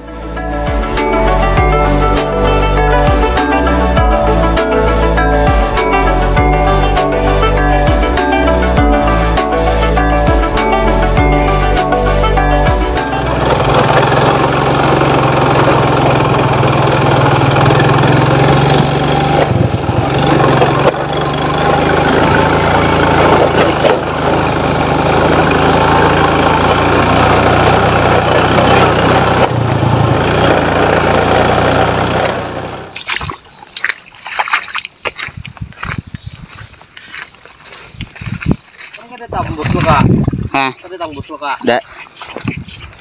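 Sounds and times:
small motorcycle engine running: 0.0 - 33.1
knocks and scuffs: 33.0 - 40.5, 41.9 - 43.0.

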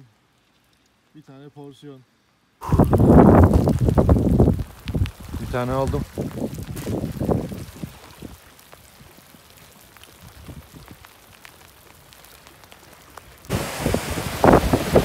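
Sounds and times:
steady hiss: 0.0 - 15.0
wind buffeting microphone: 2.6 - 9.1, 10.0 - 11.1, 13.5 - 15.0.

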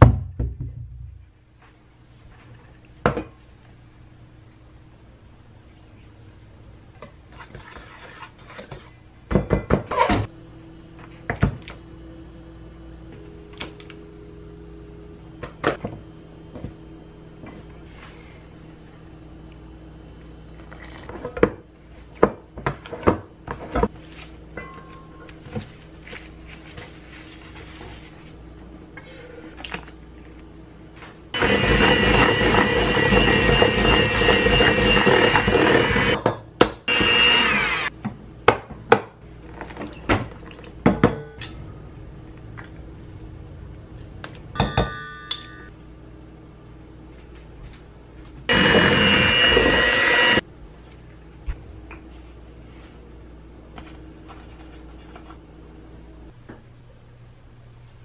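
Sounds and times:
electric hand mixer whining: 31.4 - 36.2, 36.9 - 37.9, 48.5 - 50.4.

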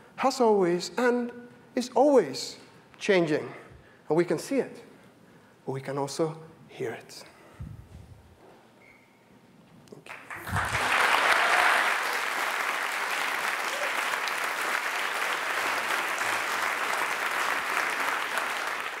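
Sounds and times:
large audience applauding: 10.0 - 19.0.

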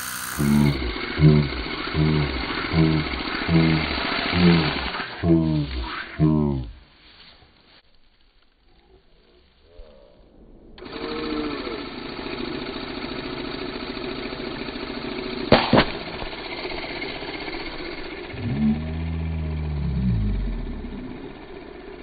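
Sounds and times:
air inflator pumping: 0.0 - 6.6, 10.8 - 22.0
rocket launch pops: 15.5 - 16.3.

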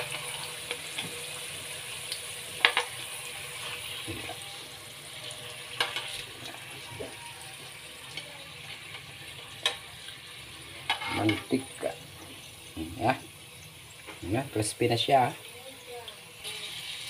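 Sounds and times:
fries sizzling in hot oil: 0.0 - 17.0
metal spoon scraping wok: 10.6 - 11.8.

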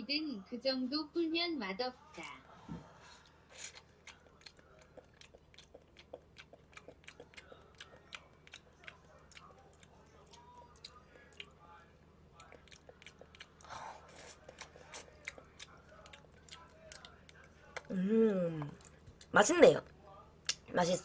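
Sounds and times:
wet chewing clicks: 3.6 - 11.6, 12.3 - 13.7, 14.3 - 17.9.

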